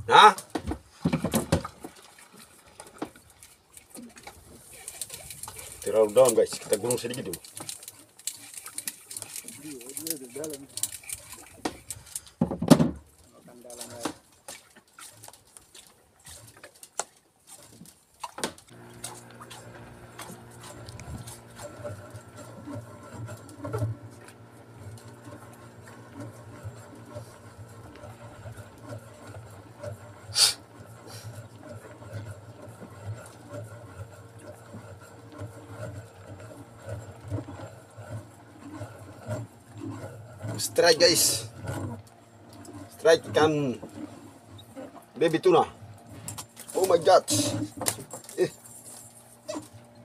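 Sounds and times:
irregular knocks and bumps: 0.5 - 2.0, 12.4 - 13.1
motor hum: 18.4 - 50.0.

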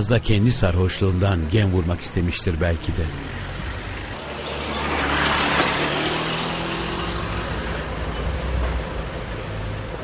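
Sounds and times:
vehicle passing by: 2.6 - 9.0.

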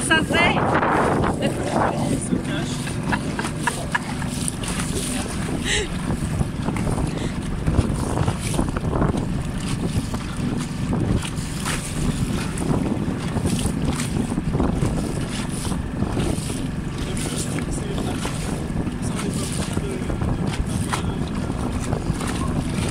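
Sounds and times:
water splashing against hull: 0.0 - 22.9
wind buffeting microphone: 0.0 - 22.9.

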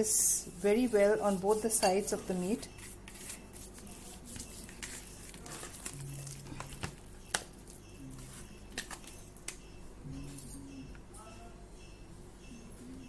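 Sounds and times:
hands squishing wet meat: 2.8 - 9.6.

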